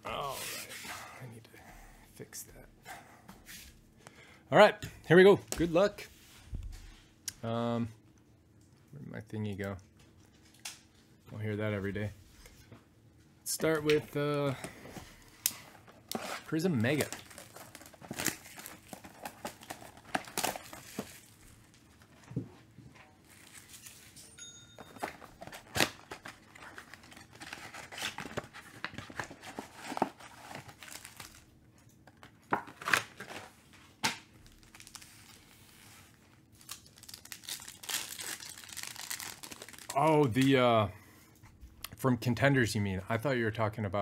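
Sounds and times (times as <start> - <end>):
foil packs ripping and crinkling: 15.4 - 22.2, 23.2 - 24.2, 25.0 - 31.5, 34.4 - 40.6.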